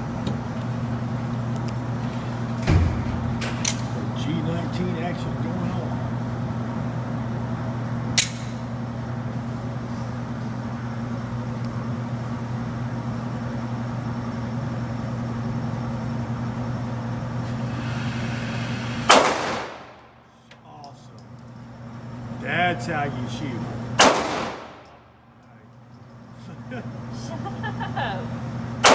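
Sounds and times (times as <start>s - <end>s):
steady low hum: 0.0s - 28.9s
pistol shots: 19.1s - 20.0s, 24.0s - 25.0s.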